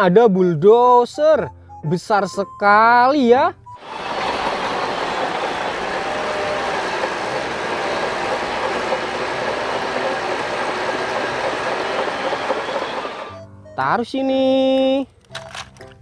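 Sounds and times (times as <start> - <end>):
bulldozer engine: 3.8 - 13.4
steel tracks clattering: 3.8 - 13.4.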